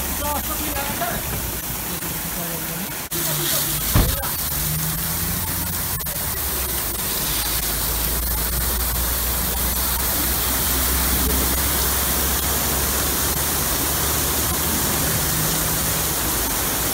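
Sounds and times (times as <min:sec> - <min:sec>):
water spray jets hissing: 0:00.0 - 0:16.9.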